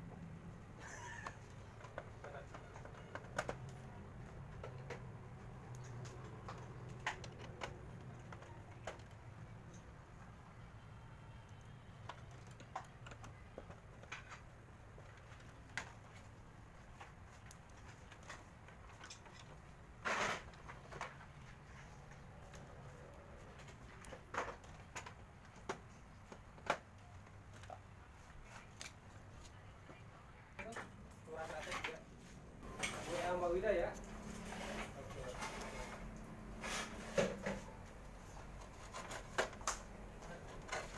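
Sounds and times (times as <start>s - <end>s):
scrape or rattle: 20.0s - 20.5s, 34.2s - 37.6s.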